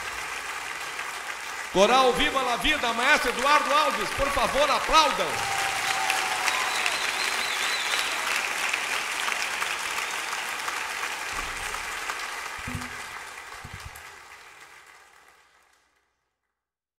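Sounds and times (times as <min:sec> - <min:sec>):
audience applauding: 0:00.0 - 0:16.0
high whistle: 0:06.5 - 0:08.2.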